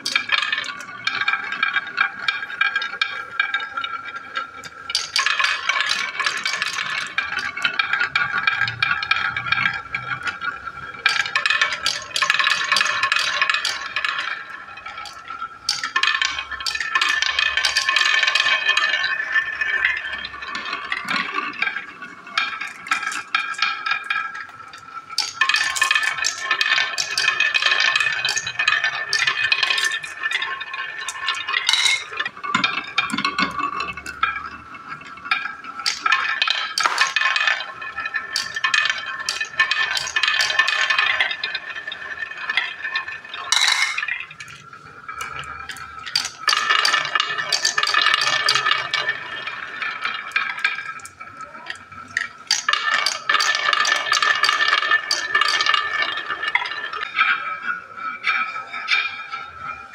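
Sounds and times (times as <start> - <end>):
marbles rolling on wooden track: 0.0 - 59.9.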